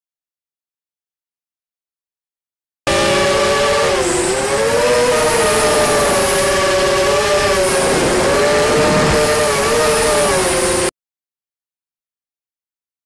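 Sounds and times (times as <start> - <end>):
quadcopter motors whining: 2.9 - 10.9.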